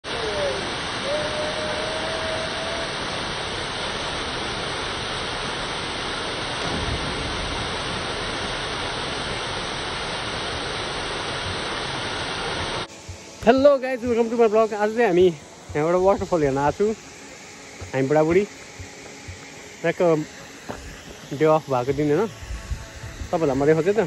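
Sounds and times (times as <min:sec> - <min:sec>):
waterfall pouring into pool: 0:00.0 - 0:12.9.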